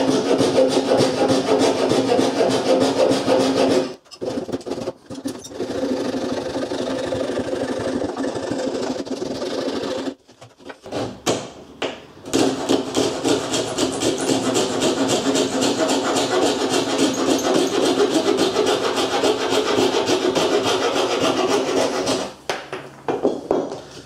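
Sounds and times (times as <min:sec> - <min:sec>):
coping saw cutting wood: 0:00.0 - 0:04.9, 0:05.5 - 0:10.2, 0:12.6 - 0:22.3.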